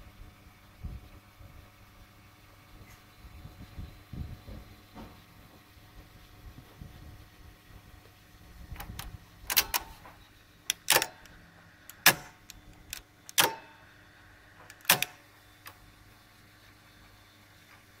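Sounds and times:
faint steady drive hum: 0.0 - 18.0
tape recorder keys clacking: 8.8 - 10.0, 10.7 - 13.6, 14.6 - 15.2.

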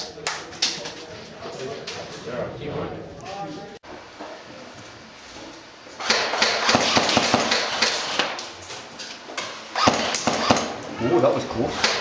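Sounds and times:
airsoft gun firing: 6.0 - 8.4, 9.8 - 10.8, 11.7 - 12.0.

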